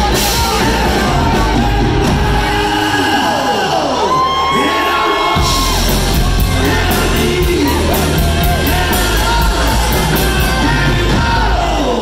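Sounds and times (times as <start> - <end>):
drums with cymbals: 0.0 - 3.0, 5.4 - 12.0
bass guitar: 0.0 - 12.0
lead singer: 0.0 - 12.0.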